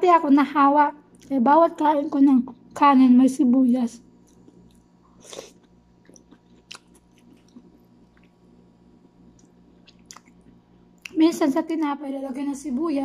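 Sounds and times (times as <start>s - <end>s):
person chewing noodles: 4.2s - 8.4s, 9.3s - 11.1s
small crunches and mouth clicks: 4.2s - 11.2s.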